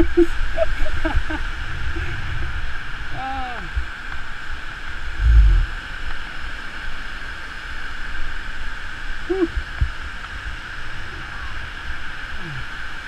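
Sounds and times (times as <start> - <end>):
wind buffeting microphone: 0.0 - 6.0
river water rushing: 0.0 - 13.0
wind rushing: 5.0 - 5.9
person humming: 9.3 - 9.7, 12.4 - 12.8.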